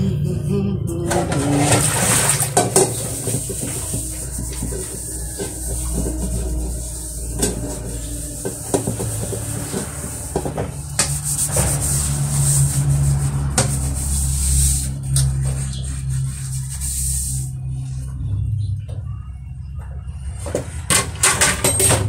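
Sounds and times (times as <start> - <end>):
low hum: 0.0 - 21.0
sponge scrubbing metal bowl: 1.1 - 17.8.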